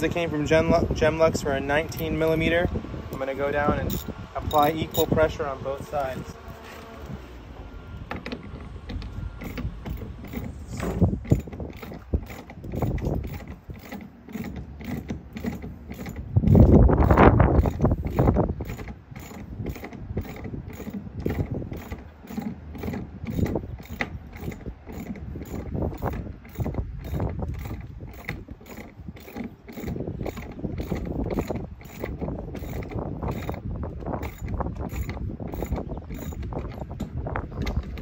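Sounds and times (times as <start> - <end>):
ratchet wrench clicking: 3.8 - 5.2, 11.2 - 37.8.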